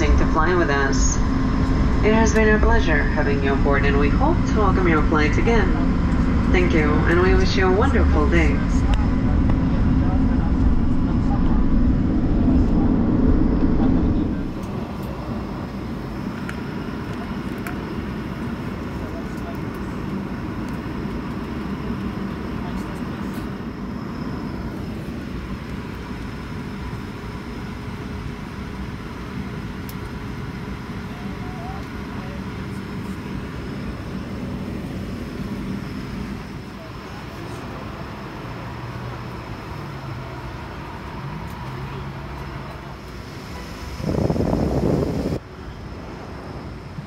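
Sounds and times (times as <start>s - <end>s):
faint steady hum: 0.0s - 38.6s
low rumble of engines and airflow: 0.0s - 47.0s
wind buffeting microphone: 43.6s - 45.4s.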